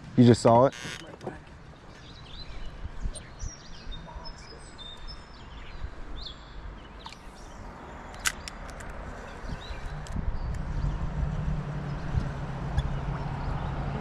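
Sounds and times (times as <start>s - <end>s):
outdoor background: 0.0s - 14.0s
small birds chirping: 0.2s - 14.0s
sharp click: 8.1s - 9.0s.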